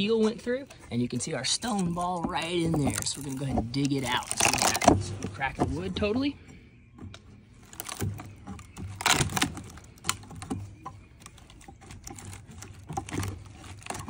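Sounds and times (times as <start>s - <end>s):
wooden plank cracking and splintering: 0.8s - 6.3s, 7.1s - 14.0s.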